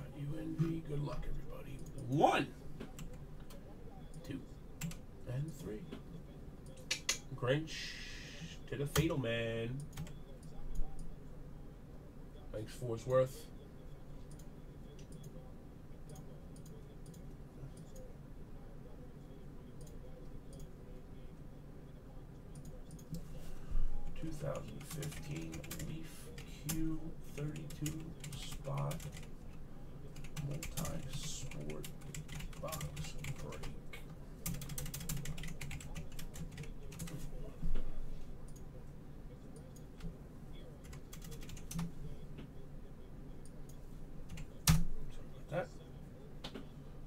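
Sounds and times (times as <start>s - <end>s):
low steady hum: 0.0s - 47.0s
computer clicks: 2.8s - 6.0s, 8.8s - 11.2s, 14.2s - 15.4s, 16.0s - 18.1s, 19.7s - 20.8s, 22.3s - 23.3s, 24.1s - 37.8s, 38.4s - 38.7s, 40.8s - 42.6s.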